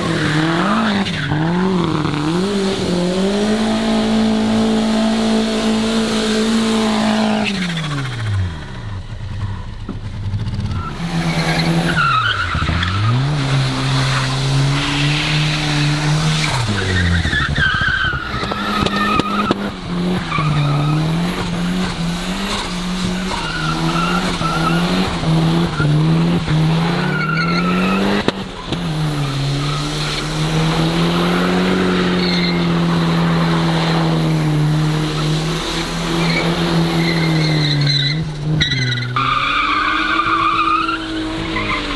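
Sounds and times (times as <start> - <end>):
car engine revving: 0.0 - 41.9
tyres squealing: 35.0 - 41.9.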